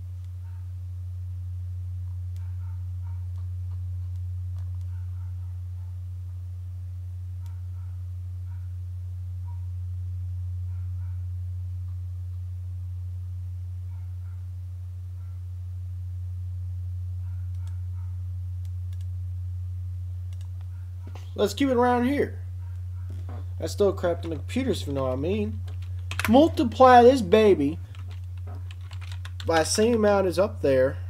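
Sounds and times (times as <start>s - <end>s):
low electrical hum: 0.0s - 31.0s
faint clicks: 18.6s - 19.1s, 20.3s - 20.8s.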